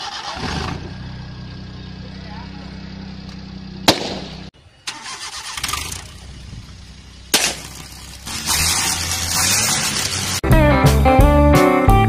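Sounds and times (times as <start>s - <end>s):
car engine running: 0.0s - 10.4s
sharp crack: 3.2s - 6.1s, 7.2s - 10.4s.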